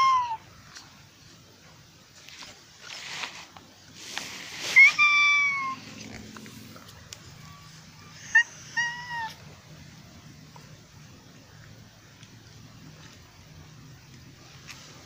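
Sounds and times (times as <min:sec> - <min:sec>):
cat meowing: 0:04.8 - 0:06.0, 0:08.1 - 0:09.4.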